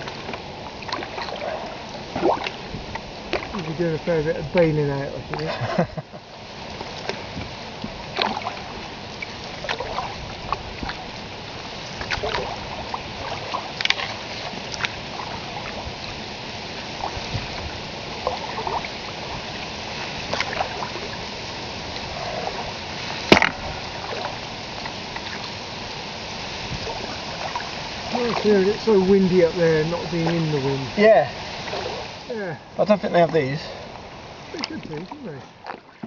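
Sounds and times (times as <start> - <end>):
paddle splashes and drips: 0.0 - 36.0
steady water rush: 0.0 - 36.0
water lapping at hull: 0.0 - 36.0.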